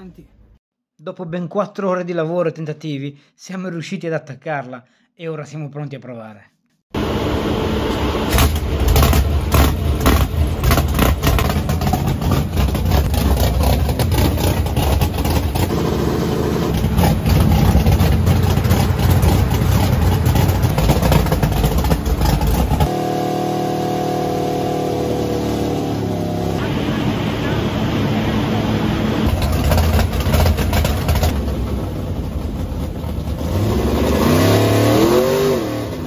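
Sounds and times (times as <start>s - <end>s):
race car engine roaring: 7.0s - 36.0s
engine pops: 8.3s - 15.7s, 16.7s - 22.9s, 29.3s - 33.4s.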